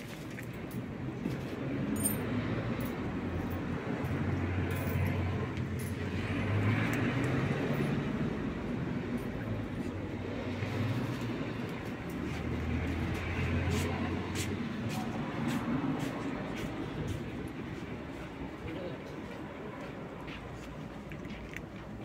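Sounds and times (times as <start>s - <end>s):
road traffic rumble: 0.0s - 22.0s
cat crunching dry kibble: 20.2s - 22.0s.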